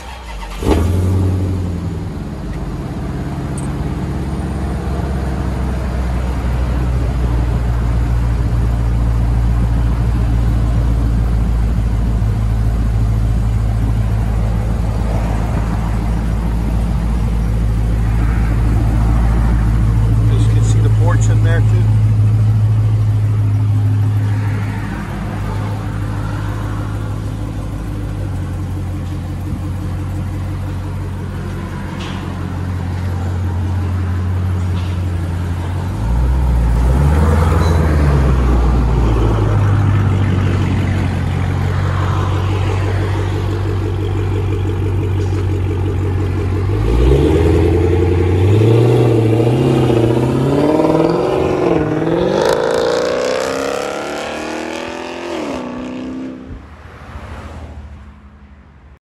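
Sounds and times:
car accelerating away: 0.0s - 1.9s, 32.8s - 57.5s
car engine idling and revving: 0.0s - 59.0s.

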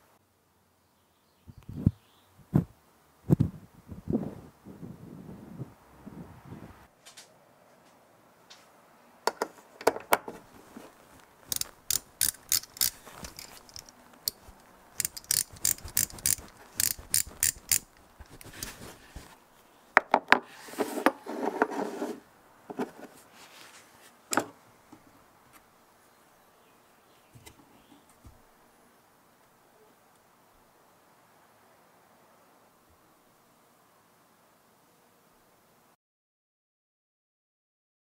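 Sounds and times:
ratchet clicking: 11.5s - 14.4s, 15.0s - 18.7s
sharp metal click: 11.5s - 18.8s.

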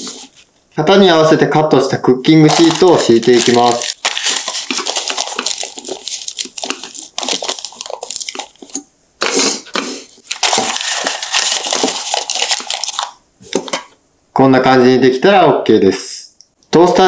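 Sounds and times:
parchment paper crinkling: 2.4s - 9.4s, 10.2s - 13.8s.

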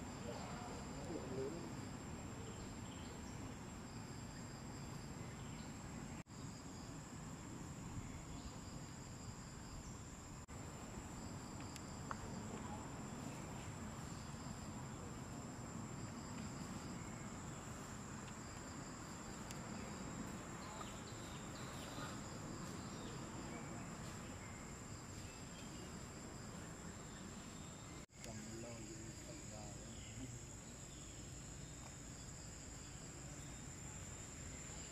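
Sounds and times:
low outdoor background noise: 0.0s - 34.9s
softer insect call: 0.0s - 34.9s
insects calling in high tone: 11.2s - 34.9s.

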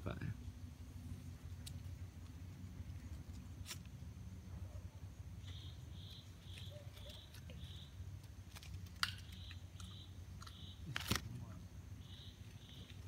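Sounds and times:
small animal chirping: 5.4s - 8.0s, 9.2s - 10.9s.

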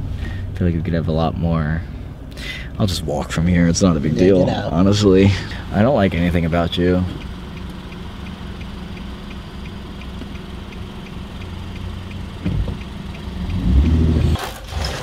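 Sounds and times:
car engine idling: 0.0s - 14.4s
light regular ticking: 4.8s - 14.4s.

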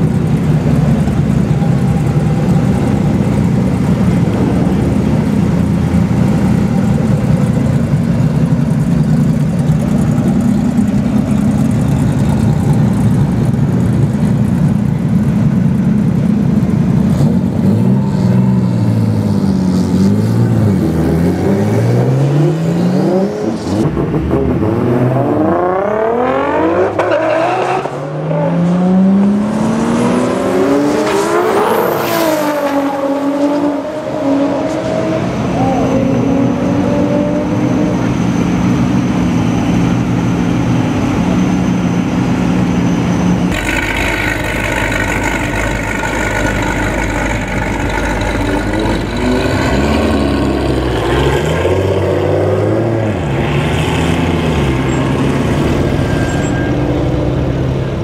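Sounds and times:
car engines idling and revving: 0.0s - 58.0s
cars accelerating hard: 16.5s - 41.3s, 43.4s - 58.0s.

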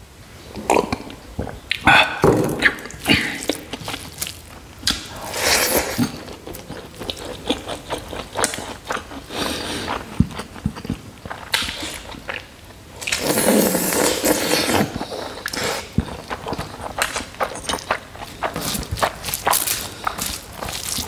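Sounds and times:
chewing: 2.6s - 21.0s
fingers mixing wet rice: 15.0s - 21.0s.

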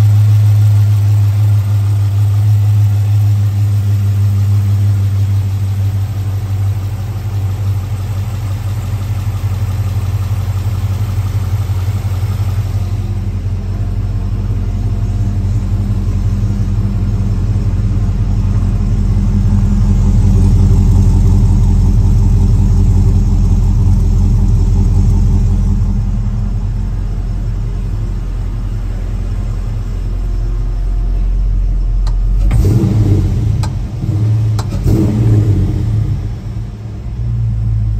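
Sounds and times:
pickup engine idling: 0.0s - 37.9s
sharp clicks and knocks: 34.6s - 34.8s.

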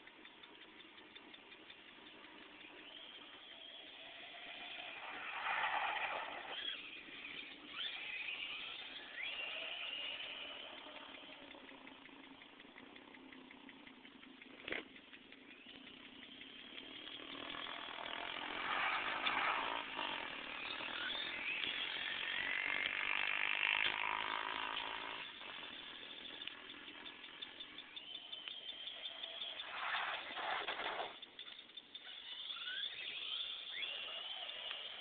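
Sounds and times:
electric motor whining: 2.7s - 13.2s, 15.4s - 31.0s, 32.0s - 35.0s
sharp click: 24.8s - 35.0s.

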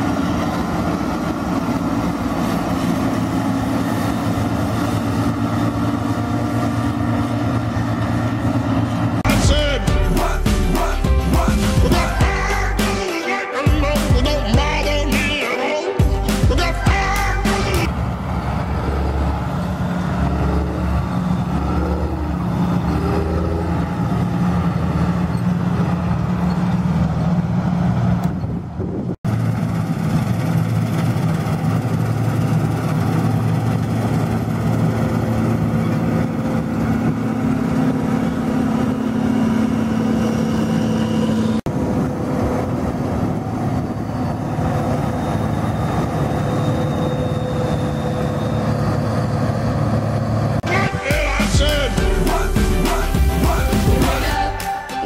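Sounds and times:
diesel farm machinery running: 0.0s - 55.0s.

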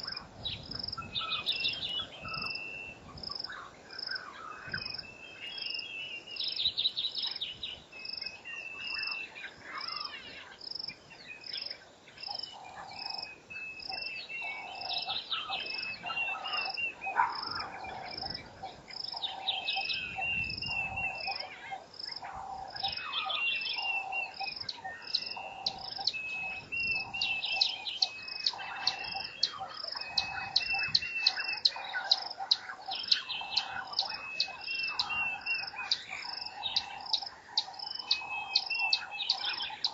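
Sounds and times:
birds calling: 0.0s - 39.9s
cricket chirping: 0.0s - 39.9s.

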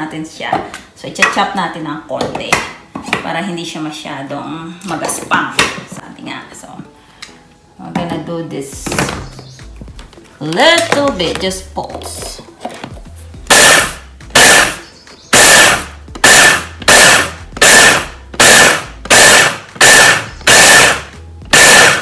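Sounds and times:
food chopper motor whining: 13.5s - 14.8s, 15.4s - 22.0s.

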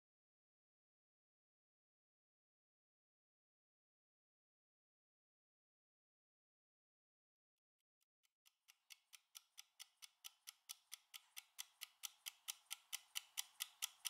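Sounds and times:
timer ticking rapidly: 8.5s - 14.0s.

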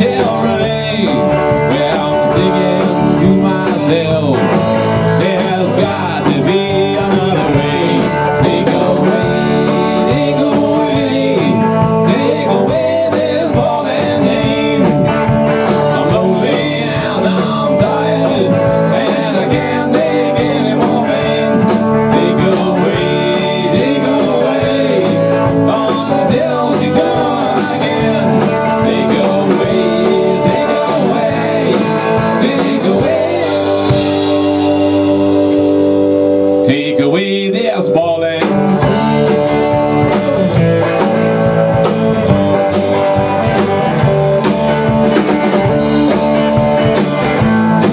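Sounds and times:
drum kit: 0.0s - 47.9s
electric bass: 0.0s - 47.9s
electric guitars: 0.0s - 47.9s.

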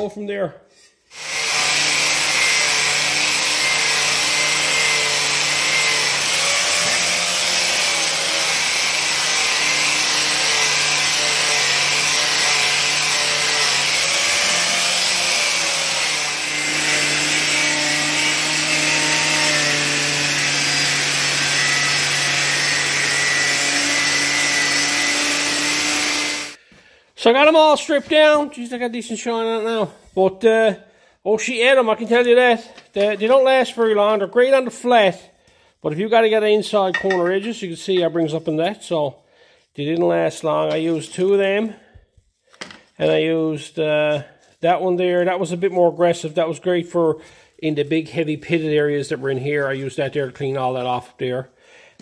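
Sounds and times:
angle grinder scrubbing metal: 1.1s - 26.6s, 36.8s - 39.0s.

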